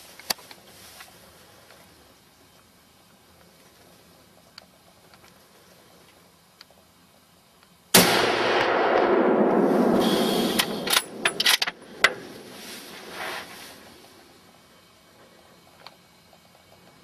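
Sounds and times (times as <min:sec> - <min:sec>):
gunshot with echo: 0:08.0 - 0:12.3.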